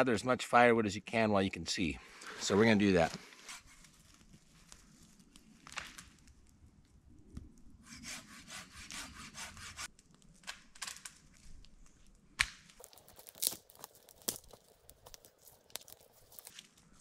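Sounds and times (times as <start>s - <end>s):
hand saw cutting wood: 7.9s - 9.9s
wood cracking and knocking: 12.4s - 16.7s.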